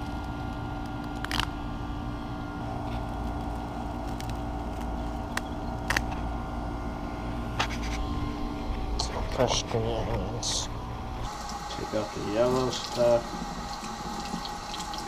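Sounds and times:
steady background hum: 0.0 - 15.0
green onion stalks snapping: 0.8 - 1.5, 3.0 - 6.2.

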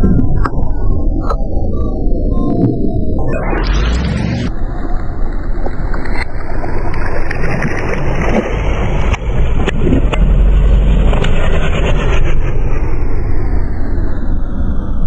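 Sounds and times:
deep rumble: 0.0 - 15.0
water splashing: 3.6 - 11.7.

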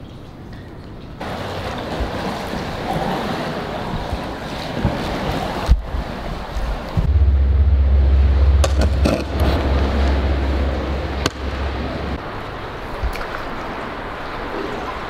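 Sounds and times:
rushing river water: 1.2 - 15.0
wind buffeting microphone: 5.7 - 13.1.

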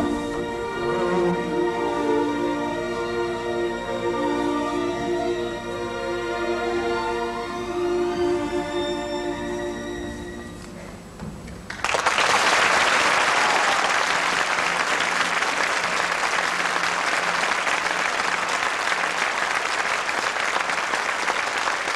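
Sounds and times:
music: 0.0 - 11.6
audience applause: 11.7 - 21.9.

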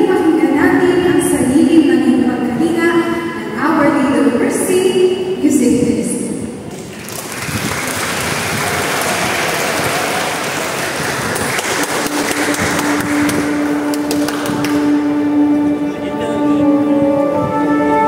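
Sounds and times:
audience applauding: 6.7 - 15.1.

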